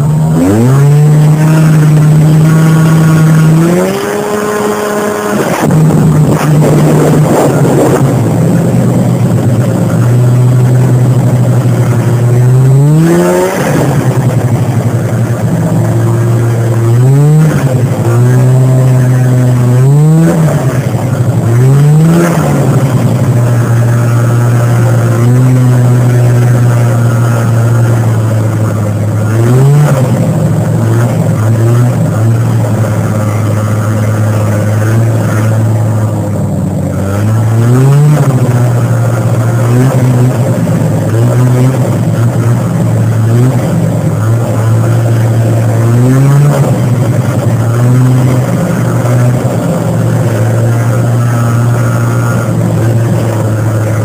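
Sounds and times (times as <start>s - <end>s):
snowmobile engine revving: 0.0s - 54.0s.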